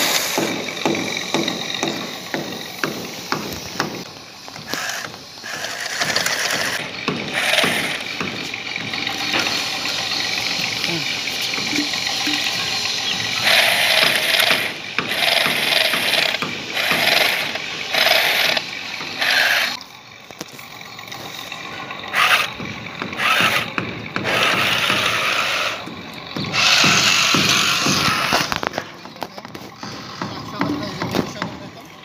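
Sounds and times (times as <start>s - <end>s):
toy motor and gears whirring: 4.7s - 8.2s, 9.1s - 19.8s, 22.1s - 22.6s, 23.2s - 25.9s, 26.5s - 28.7s.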